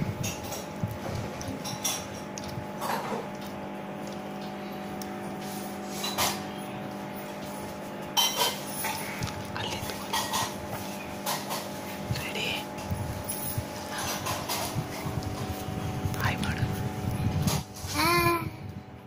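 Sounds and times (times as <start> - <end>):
aquarium air pump humming: 0.0 - 19.0.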